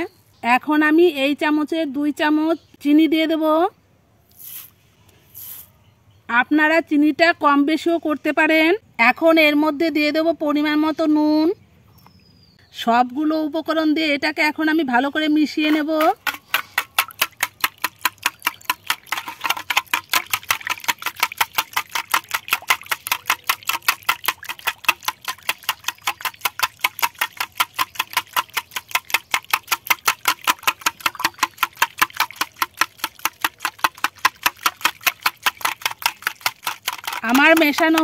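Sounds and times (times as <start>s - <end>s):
whisk clicking against glass bowl: 15.6s - 38.0s.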